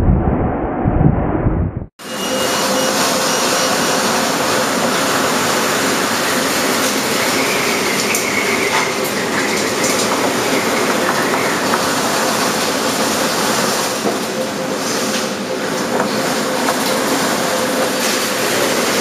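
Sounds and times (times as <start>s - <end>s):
storm wind: 0.0s - 19.0s
heavy sea: 2.0s - 19.0s.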